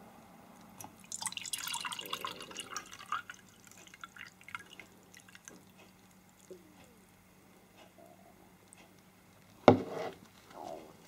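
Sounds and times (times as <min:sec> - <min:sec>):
water dripping and trickling: 0:00.9 - 0:06.5
water pouring into a cup: 0:01.0 - 0:06.5.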